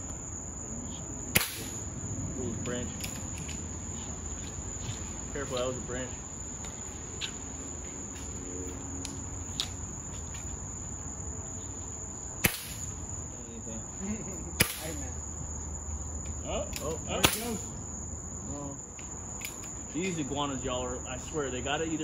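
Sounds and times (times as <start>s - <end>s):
crickets chirring: 0.0s - 22.0s
air rifle shots: 1.3s - 1.9s, 12.4s - 13.0s, 14.6s - 15.0s, 17.2s - 17.7s.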